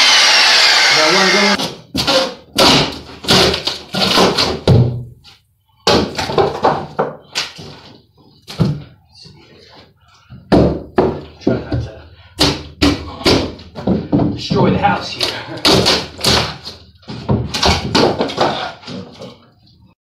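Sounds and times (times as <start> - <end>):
wood thunks and knocks in demolition: 1.6 - 5.1, 5.8 - 7.9, 10.5 - 19.4.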